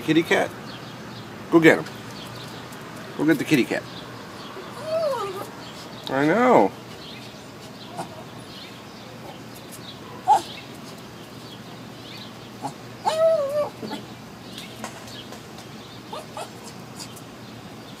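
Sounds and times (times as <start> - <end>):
dog whining: 4.6 - 5.6, 10.2 - 10.6, 12.6 - 14.1, 16.1 - 17.1.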